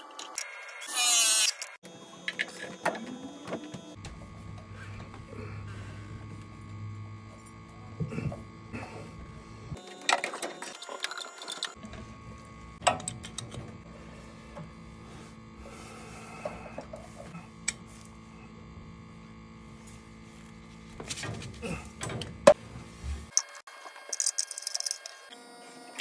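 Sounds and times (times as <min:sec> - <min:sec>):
metallic clicks of pipe and wrench: 0:12.8 - 0:13.6.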